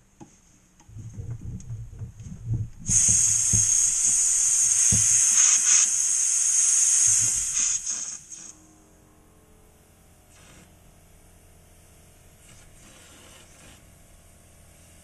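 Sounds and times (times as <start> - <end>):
aerosol spray can hissing: 2.8 - 8.5.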